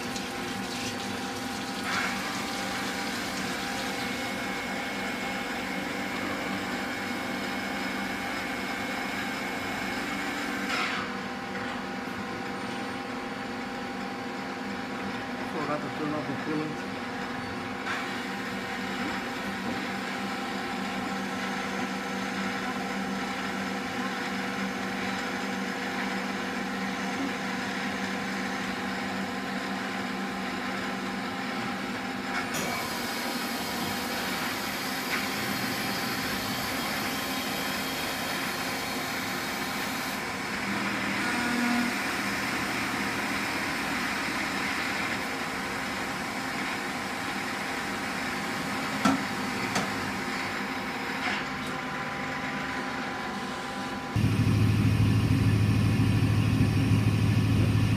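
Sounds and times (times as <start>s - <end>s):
lathe machine hum: 32.8s - 57.9s.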